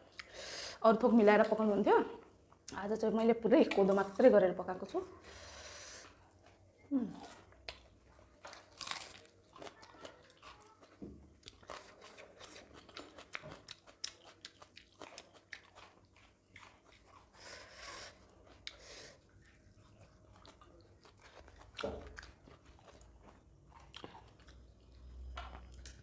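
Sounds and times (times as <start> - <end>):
chewing and crunching: 6.0 - 26.0.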